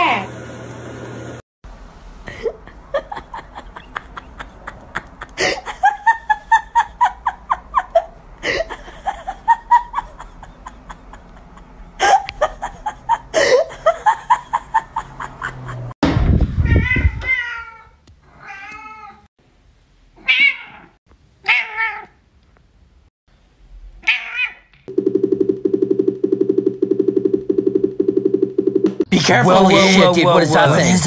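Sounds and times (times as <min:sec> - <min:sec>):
person laughing hard: 0:02.3 - 0:15.9.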